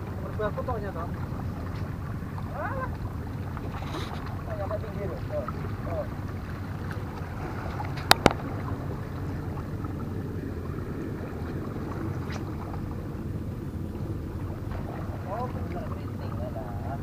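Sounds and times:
water lapping against rocks: 0:00.0 - 0:17.0.

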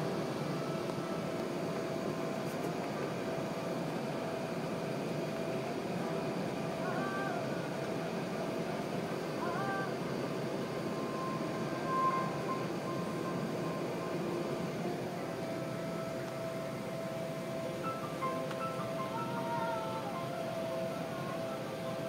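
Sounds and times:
airplane cabin rumble: 0:00.0 - 0:22.0
brief loud tone: 0:10.9 - 0:14.2.

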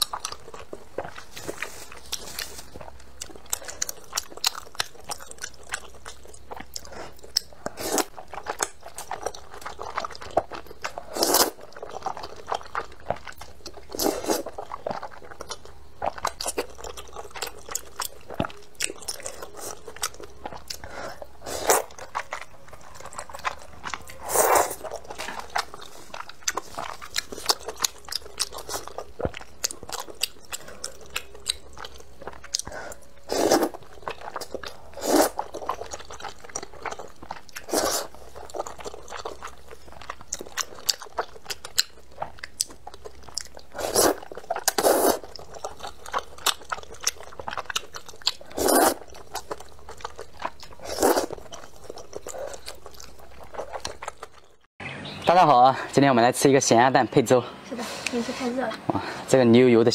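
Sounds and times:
person chewing noodles: 0:00.0 - 0:54.7
loud noodle slurping: 0:24.1 - 0:28.9, 0:32.6 - 0:36.9, 0:37.6 - 0:39.6, 0:43.5 - 0:54.0.

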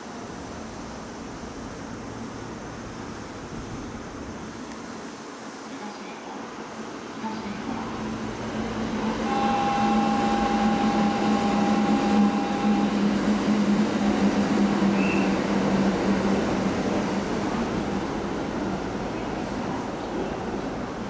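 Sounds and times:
electric train equipment humming: 0:07.0 - 0:21.0
held tone: 0:09.0 - 0:13.2.

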